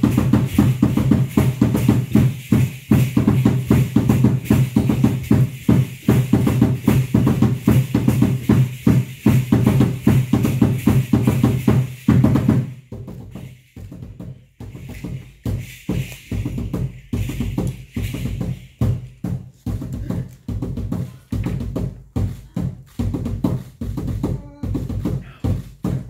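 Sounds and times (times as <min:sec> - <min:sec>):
drum-led percussion music: 0:00.0 - 0:26.0.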